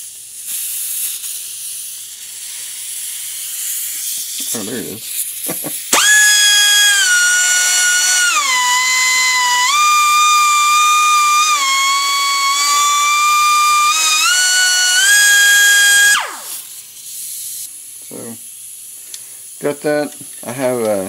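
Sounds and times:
air die grinder whining: 5.6 - 16.8.

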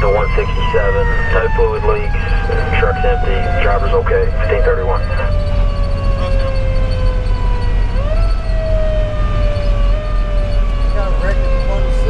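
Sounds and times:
diesel engine and road rumble: 0.0 - 12.0
mechanical siren winding: 5.4 - 11.5.

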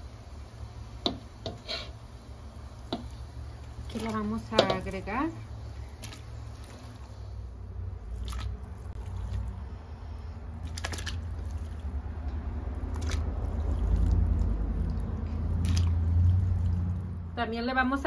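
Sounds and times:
meat plopping into water: 5.9 - 6.8, 8.1 - 9.6, 10.6 - 11.9, 12.8 - 16.7.

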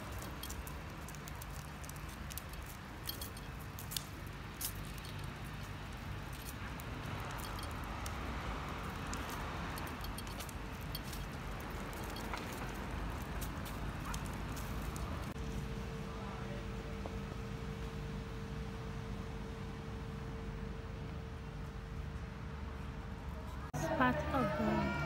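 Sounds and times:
stroller frame rattling: 0.0 - 15.4
stroller wheels rumbling: 0.0 - 15.6.

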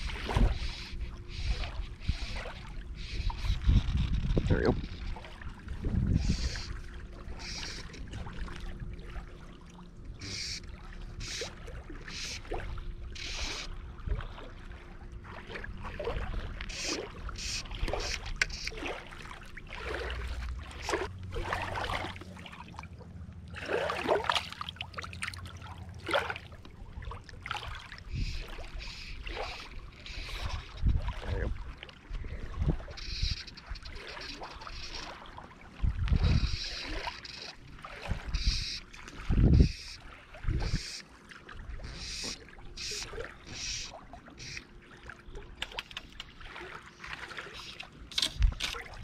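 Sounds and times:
small waves lapping on rocks: 15.1 - 49.0.

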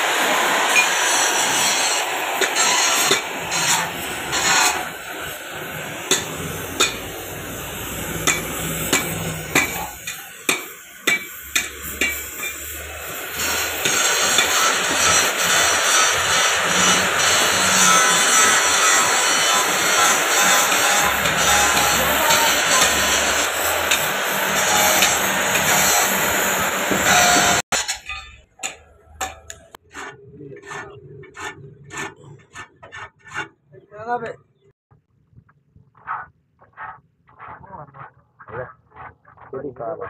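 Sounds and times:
brazing torch hissing: 0.0 - 27.7.

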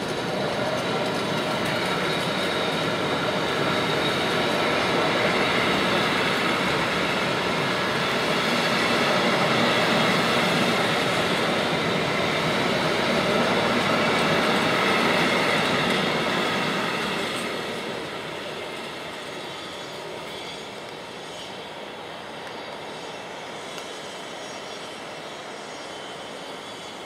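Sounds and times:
train wheels on rails ringing: 0.0 - 27.0.

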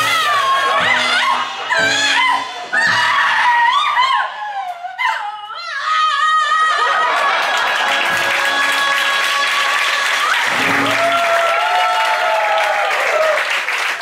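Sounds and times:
cabaret song music: 0.0 - 13.4
audience applauding and cheering: 6.7 - 14.0.

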